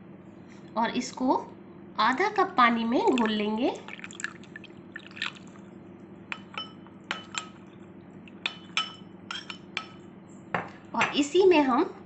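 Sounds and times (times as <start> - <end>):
water being poured: 3.1 - 5.6
metal spoon clinking against glass: 8.5 - 9.7.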